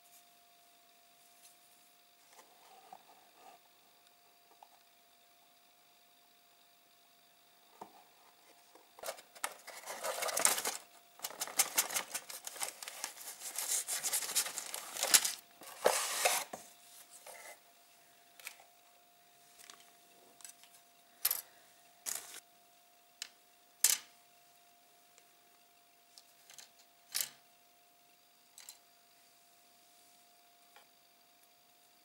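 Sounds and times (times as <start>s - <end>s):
plastic parts tapping: 9.0s - 16.4s
plastic bag crinkling: 9.1s - 15.4s.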